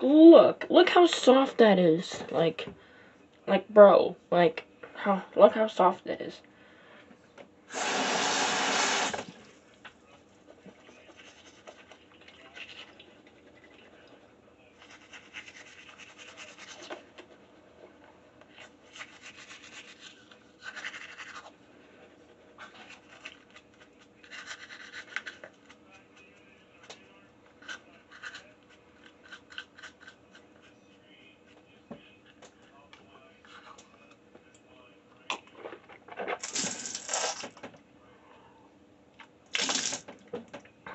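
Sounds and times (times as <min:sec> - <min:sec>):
toothbrush scrubbing teeth: 0:10.9 - 0:14.2, 0:14.8 - 0:17.6, 0:18.5 - 0:26.4, 0:27.6 - 0:30.8.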